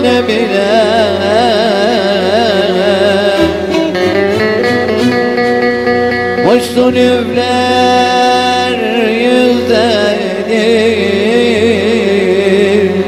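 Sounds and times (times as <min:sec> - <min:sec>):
electric lute folk melody: 0:00.0 - 0:13.0
keyboard accompaniment: 0:00.0 - 0:13.0.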